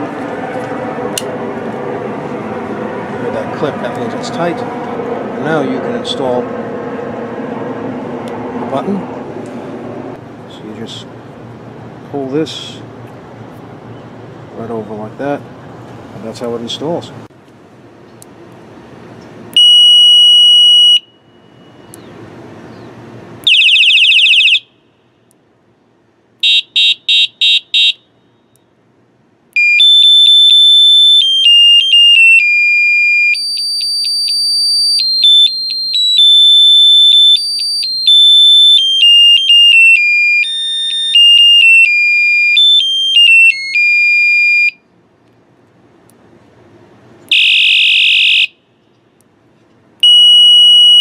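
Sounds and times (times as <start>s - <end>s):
electronic horn beeps: 19.6s - 22.0s, 26.4s - 28.1s, 29.6s - 44.8s, 47.3s - 48.6s, 50.0s - 51.0s.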